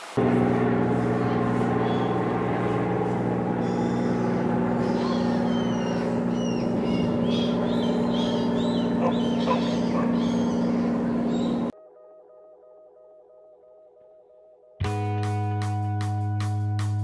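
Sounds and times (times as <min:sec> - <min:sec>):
birds chirping: 0:00.2 - 0:11.7
low droning hum: 0:00.2 - 0:11.7.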